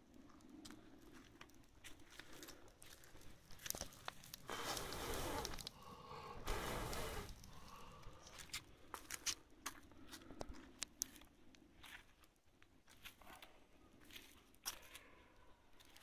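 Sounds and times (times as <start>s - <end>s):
hay fire crackling: 0.0s - 13.0s.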